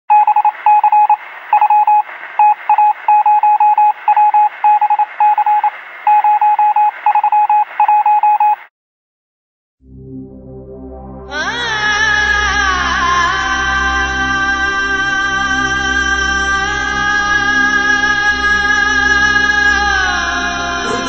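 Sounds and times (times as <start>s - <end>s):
rapid electronic beeps: 0.1s - 8.7s
low music: 9.8s - 21.0s.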